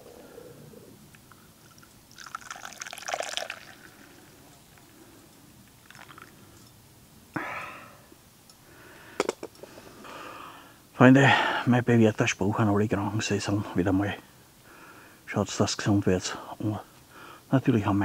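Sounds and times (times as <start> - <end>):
coffee pouring into a cup: 1.6 - 4.9, 5.8 - 6.4.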